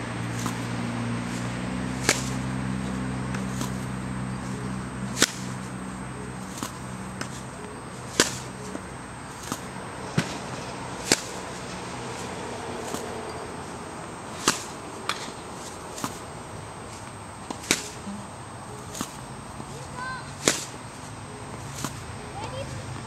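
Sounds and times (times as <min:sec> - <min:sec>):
low hum: 0:00.0 - 0:23.0
tennis racket striking ball: 0:00.0 - 0:23.0
ball bouncing on hard court: 0:01.9 - 0:03.9, 0:08.0 - 0:13.4.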